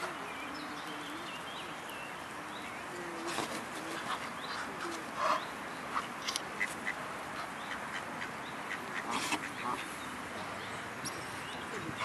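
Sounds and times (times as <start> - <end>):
geese quacking: 6.0 - 10.0.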